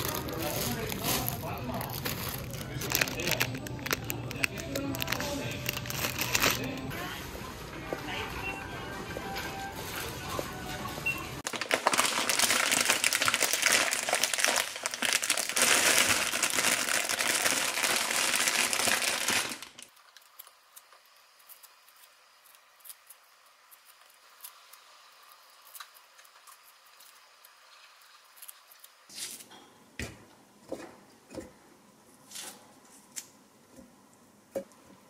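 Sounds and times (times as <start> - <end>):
plastic bag crinkling: 0.0 - 7.3, 11.4 - 20.4.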